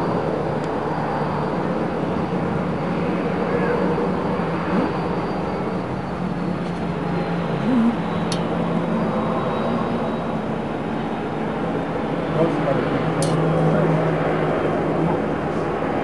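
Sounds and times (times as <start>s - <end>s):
aircraft engine noise: 0.0s - 16.0s
sharp click: 13.2s - 13.4s.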